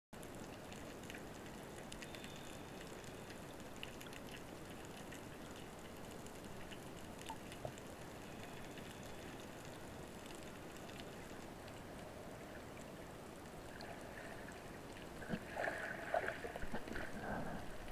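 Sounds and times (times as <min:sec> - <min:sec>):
faint clicks and ticks: 0:00.2 - 0:15.4.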